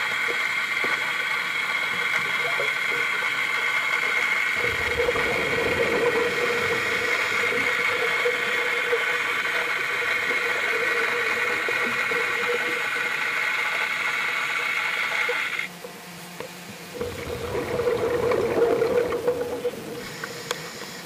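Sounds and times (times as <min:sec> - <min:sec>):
underwater mechanical hum and whine: 0:00.0 - 0:21.0.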